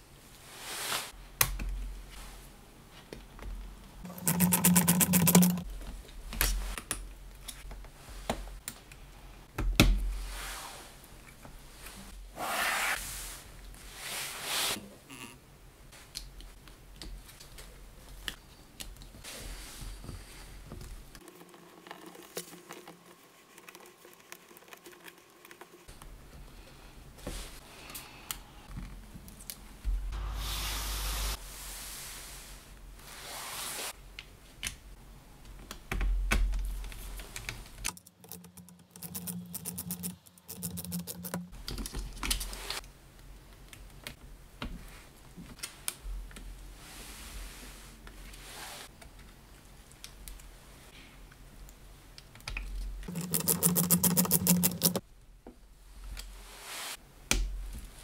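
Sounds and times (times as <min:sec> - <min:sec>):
small screwdriver on tiny screws: 0:04.1 - 0:05.6, 0:37.9 - 0:41.4, 0:53.1 - 0:55.0
small clicks and taps on plastic parts: 0:51.3 - 0:56.3.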